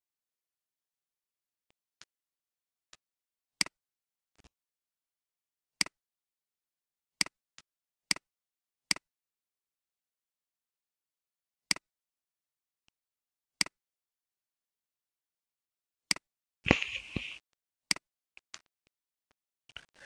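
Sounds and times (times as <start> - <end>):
mouse button clicks: 16.7 - 17.4.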